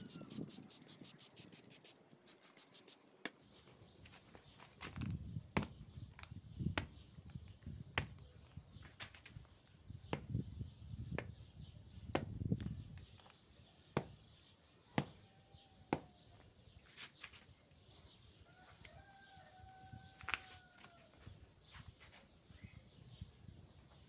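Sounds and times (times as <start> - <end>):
chicken calling: 0.0 - 0.8.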